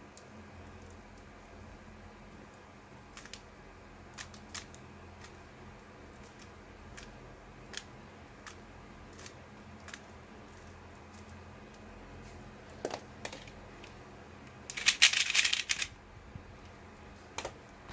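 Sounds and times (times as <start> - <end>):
puzzle cube clicking: 3.1 - 3.4, 14.7 - 15.9
puzzle cube rapid clacking: 14.7 - 15.9.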